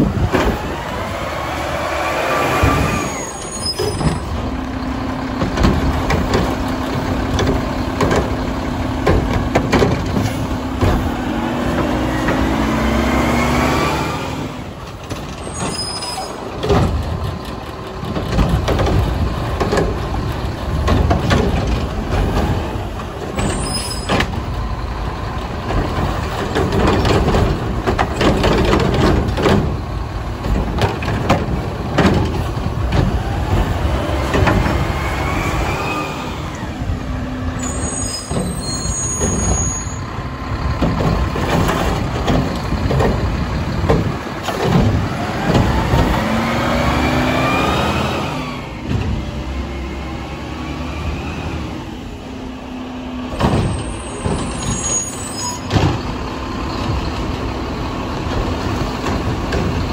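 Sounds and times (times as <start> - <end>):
diesel engine revving: 0.0 - 59.9
metallic clanks and knocks: 5.3 - 12.5, 14.9 - 24.6, 25.6 - 34.8, 40.5 - 46.3.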